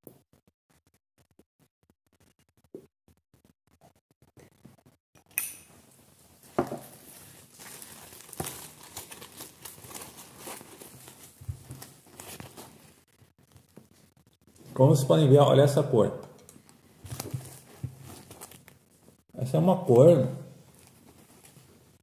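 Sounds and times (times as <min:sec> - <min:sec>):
dry leaves crinkling and rustling: 0:06.8 - 0:12.9.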